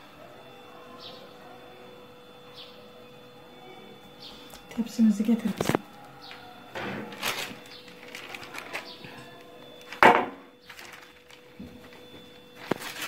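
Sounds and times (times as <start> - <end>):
soft handling noises: 6.8 - 10.0, 10.6 - 13.0
baking tray knocking: 10.0 - 10.5.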